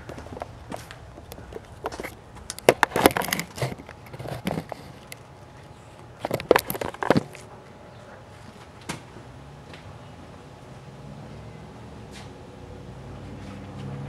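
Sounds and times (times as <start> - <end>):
camera handling knocks and rustling: 1.5 - 5.1, 6.2 - 7.4.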